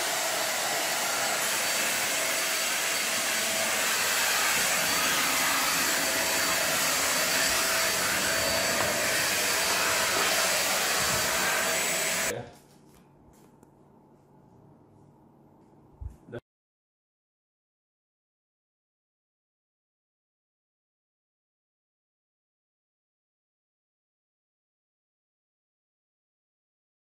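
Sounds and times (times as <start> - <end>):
handheld vacuum cleaner whine: 0.0 - 12.3.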